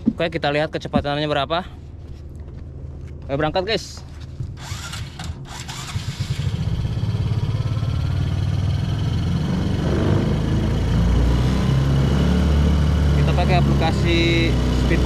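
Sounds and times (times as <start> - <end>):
motorcycle engine droning: 4.1 - 15.0.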